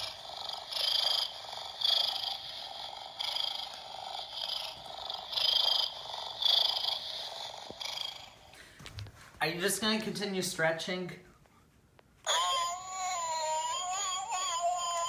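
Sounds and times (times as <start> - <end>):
recorded cat distress sounds from toy: 0.0 - 8.6, 12.2 - 15.0.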